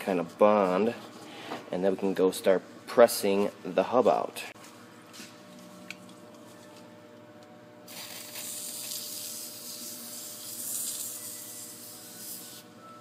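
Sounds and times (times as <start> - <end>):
aerosol can spraying hiss: 7.9 - 12.7.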